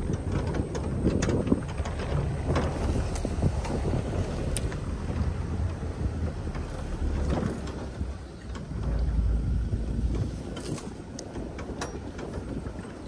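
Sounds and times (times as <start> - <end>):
vehicle body knocks and rattles: 0.0 - 13.0
vehicle engine and tyres rumbling: 0.0 - 13.0.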